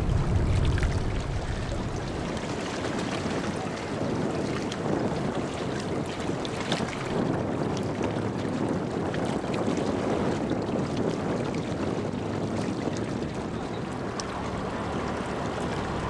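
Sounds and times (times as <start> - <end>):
ship engines droning: 0.0 - 2.8, 13.4 - 16.0
small waves lapping: 0.0 - 16.0
wind buffeting microphone: 0.0 - 16.0.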